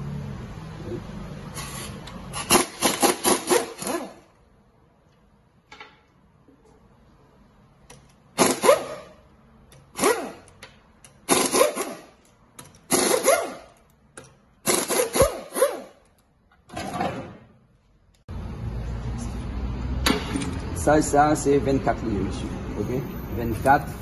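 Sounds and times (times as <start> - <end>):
air impact wrench bursts: 1.5 - 4.3, 8.3 - 9.2, 9.8 - 12.2, 12.8 - 13.8, 14.6 - 16.0.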